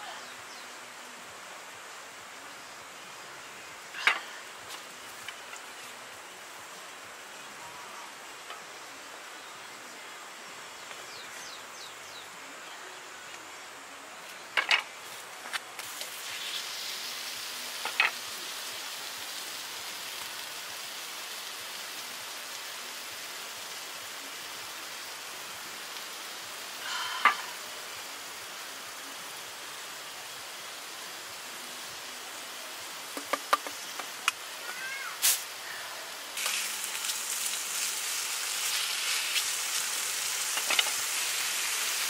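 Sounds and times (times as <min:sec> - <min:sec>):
meat sizzling on grill pan: 0:15.8 - 0:32.2, 0:32.8 - 0:42.0.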